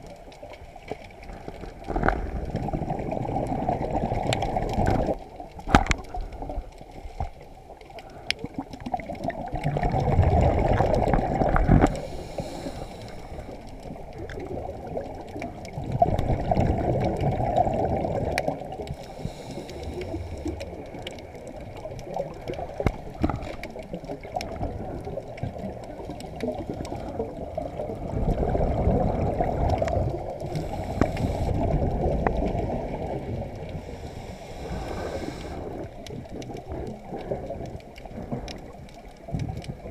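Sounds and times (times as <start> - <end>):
low muffled water noise: 0.0 - 39.9
regulator exhaled bubbles rushing: 1.9 - 5.2, 8.8 - 12.0, 15.7 - 18.9, 20.4 - 34.0.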